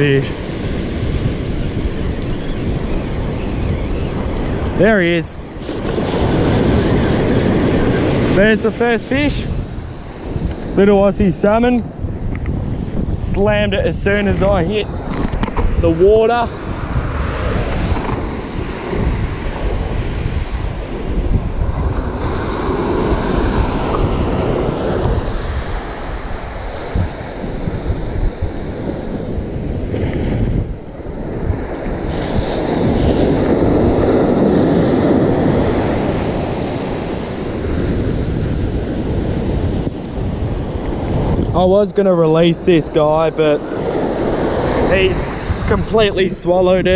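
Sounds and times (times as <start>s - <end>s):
surf breaking on beach: 0.0s - 12.2s, 12.8s - 46.9s
wind buffeting microphone: 0.0s - 46.9s.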